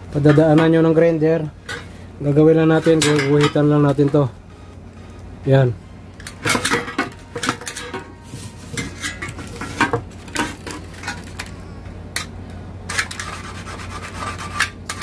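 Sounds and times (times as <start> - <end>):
scriber scratching sheet metal: 12.9 - 15.0.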